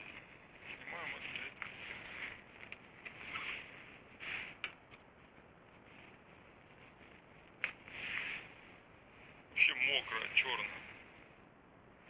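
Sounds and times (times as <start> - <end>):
soft plastic rustles: 0.0 - 9.6.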